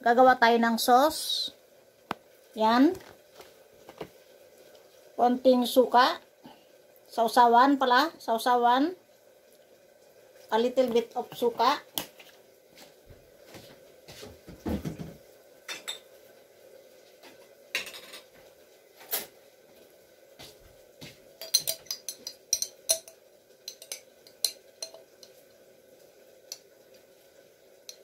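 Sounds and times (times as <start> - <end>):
faint steady hum: 0.0 - 28.0
utensils clinking against dishes: 17.8 - 18.3, 21.4 - 25.0.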